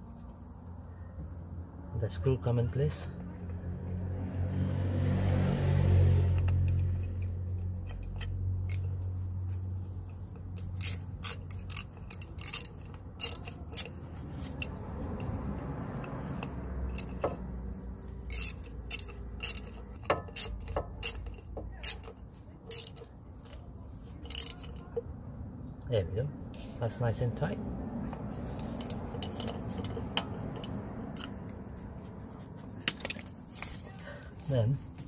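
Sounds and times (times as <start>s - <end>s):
socket ratchet clicking: 10.2s - 15.4s, 16.0s - 17.5s, 18.2s - 23.1s, 24.2s - 25.0s, 28.6s - 31.6s.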